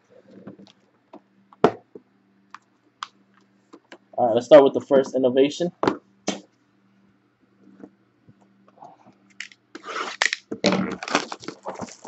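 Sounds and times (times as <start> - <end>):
plastic shrink wrap tearing: 9.4 - 12.0.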